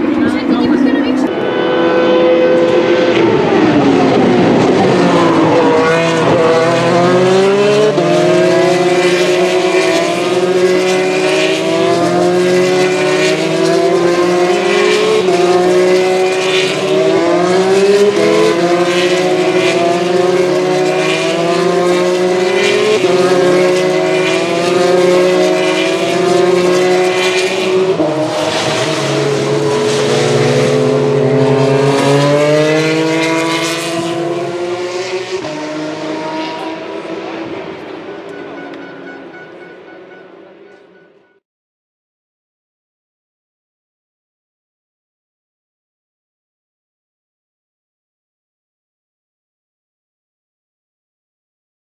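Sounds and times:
race car engines at full throttle: 0.0s - 41.4s.

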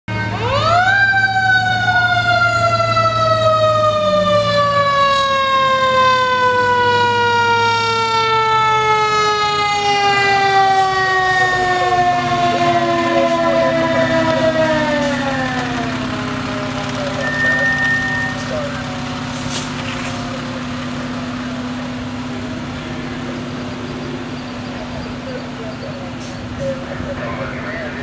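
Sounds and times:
mechanical siren wailing: 0.1s - 21.7s
truck engine rumble: 0.2s - 28.0s.

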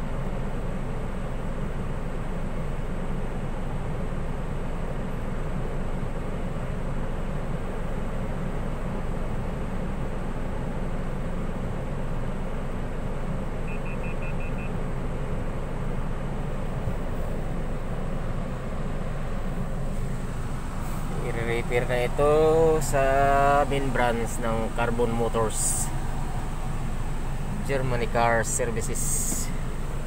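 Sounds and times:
car cabin rumble: 0.0s - 30.0s
faint high beeps: 13.6s - 14.8s.

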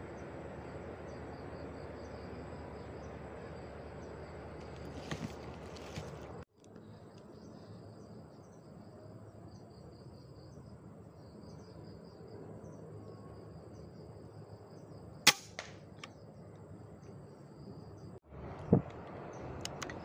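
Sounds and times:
insects chirring: 0.0s - 18.2s
air rifle shot crack: 15.3s - 15.8s.

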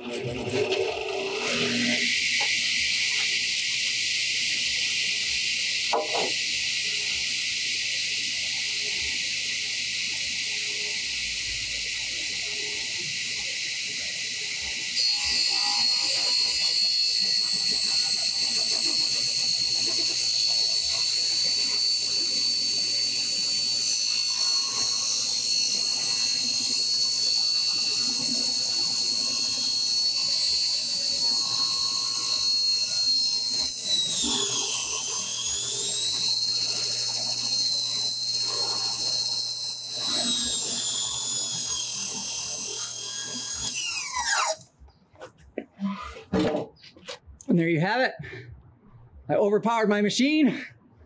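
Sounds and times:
table saw whine: 0.0s - 46.7s
saw blade ripping board: 15.0s - 44.6s.

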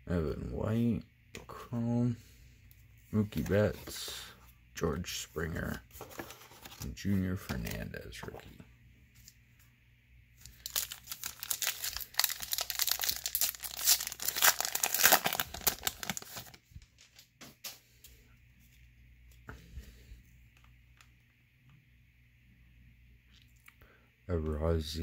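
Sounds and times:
foil wrapper tearing and crinkling: 10.4s - 17.2s.

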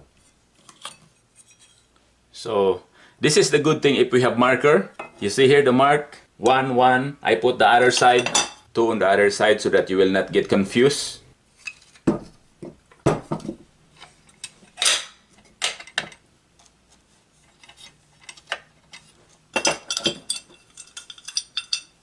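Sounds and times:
metal parts clinking on workbench: 18.2s - 22.0s.

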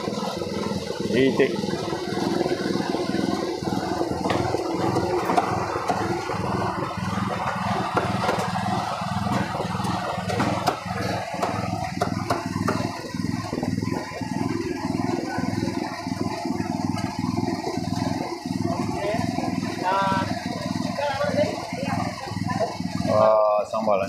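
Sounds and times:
low engine-like drone: 0.0s - 24.0s
cleaver chopping on wooden block: 9.3s - 12.9s.

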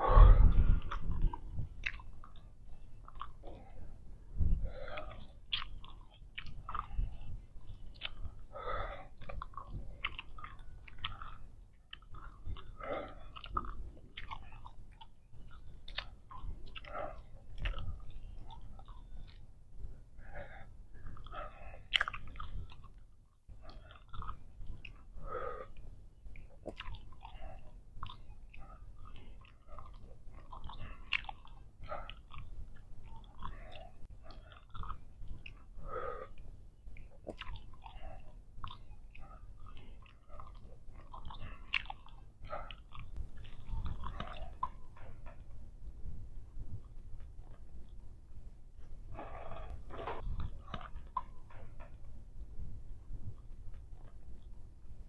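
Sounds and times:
gum chewing wet smacks: 0.1s - 45.6s, 48.8s - 52.1s.

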